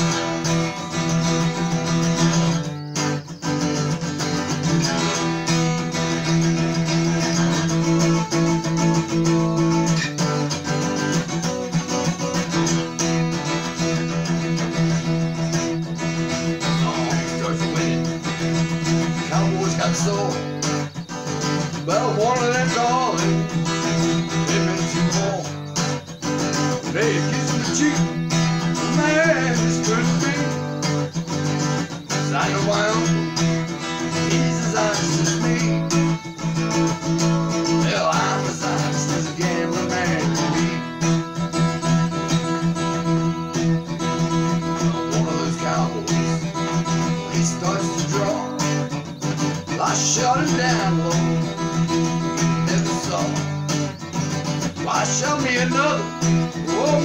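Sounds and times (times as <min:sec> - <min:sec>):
acoustic guitar strummed: 0:00.0 - 0:57.0
man singing: 0:13.5 - 0:41.4, 0:42.2 - 0:57.0.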